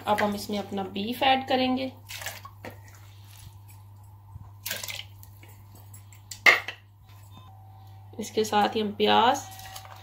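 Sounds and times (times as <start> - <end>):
meat squishing in water: 2.0 - 5.8.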